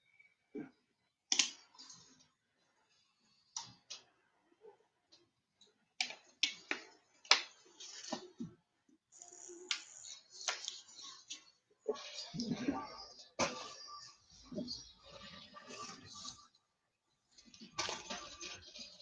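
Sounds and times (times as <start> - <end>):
sharp clicks and snaps: 1.3 - 1.7.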